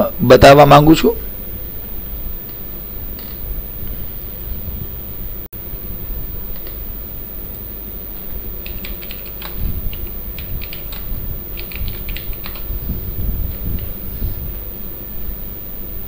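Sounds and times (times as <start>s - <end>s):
low background hum: 0.0s - 16.0s
typing on computer keyboard: 8.6s - 12.9s.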